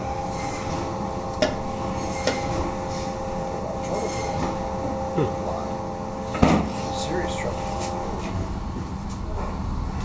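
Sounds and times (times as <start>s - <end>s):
mechanical room hum: 0.0s - 10.0s.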